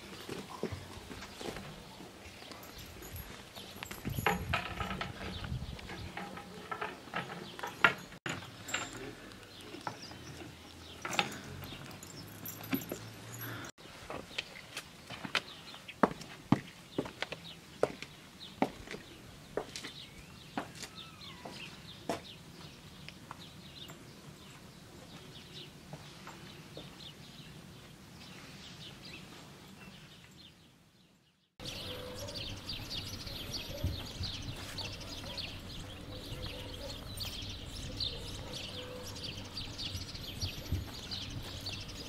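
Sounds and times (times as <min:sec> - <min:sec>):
birds chirping: 0:00.0 - 0:13.7, 0:16.9 - 0:42.0
footsteps on stone steps: 0:00.0 - 0:22.4, 0:31.7 - 0:42.0.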